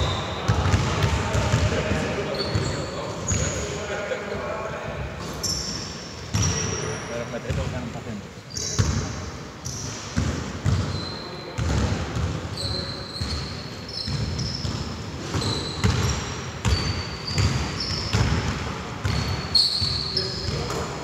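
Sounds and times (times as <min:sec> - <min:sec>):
sneakers squeaking on floor: 0:00.0 - 0:03.8, 0:05.2 - 0:07.8, 0:08.4 - 0:21.0
basketball bouncing: 0:00.5 - 0:02.6, 0:10.2 - 0:10.9, 0:14.1 - 0:19.4.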